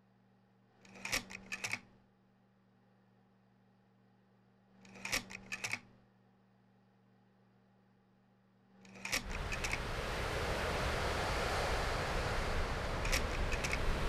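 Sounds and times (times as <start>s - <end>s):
faint hum: 5.9s - 14.0s
rushing wind with low rumble: 9.2s - 14.0s.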